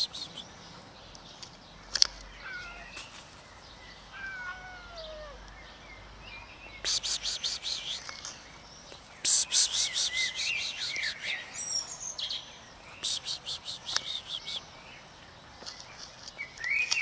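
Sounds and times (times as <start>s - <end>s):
birds whistling: 0.0s - 0.7s, 6.4s - 15.0s, 16.4s - 17.0s
birds chattering rapidly: 0.0s - 17.0s.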